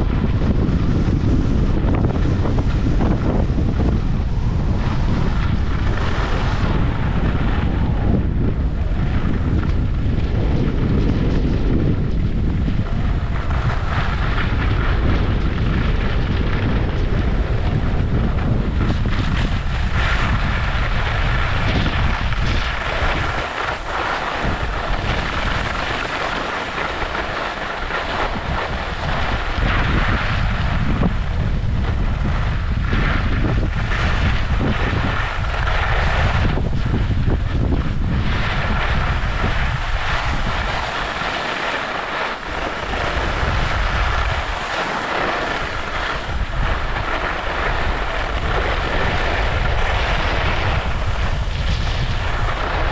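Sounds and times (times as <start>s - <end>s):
wind buffeting microphone: 0.0s - 52.9s
skis hissing on snow: 4.6s - 6.8s, 22.4s - 30.5s, 38.2s - 52.9s.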